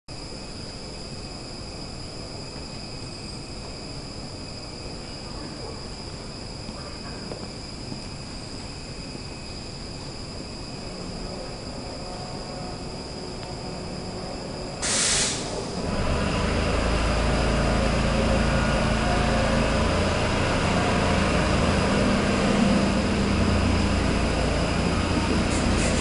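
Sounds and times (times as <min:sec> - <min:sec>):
subway train motors rumbling: 0:00.1 - 0:26.0
compressed air hiss: 0:14.8 - 0:15.8, 0:25.5 - 0:26.0.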